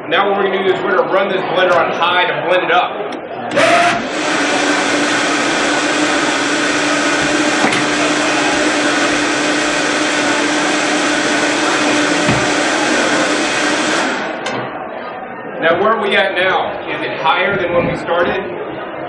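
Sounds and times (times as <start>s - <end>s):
blender whirring: 3.5s - 14.5s.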